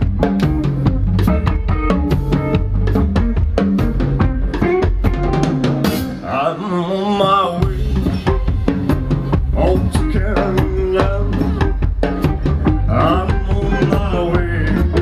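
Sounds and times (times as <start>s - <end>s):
drum kit beat: 0.0s - 6.6s, 7.2s - 15.0s
live band playing: 0.0s - 15.0s.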